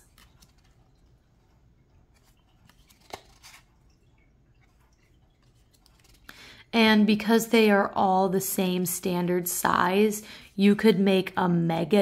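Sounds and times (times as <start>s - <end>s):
cards sliding: 2.2s - 3.7s.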